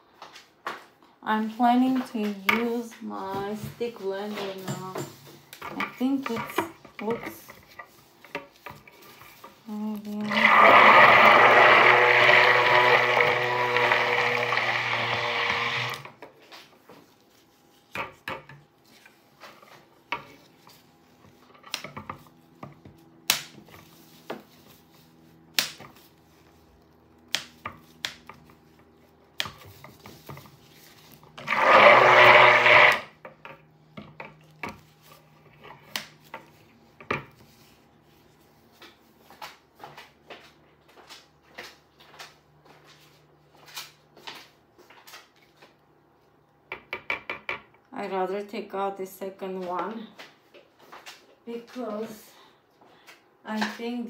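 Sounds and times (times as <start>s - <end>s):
stick blender whirring: 8.9s - 16.2s, 31.0s - 33.3s.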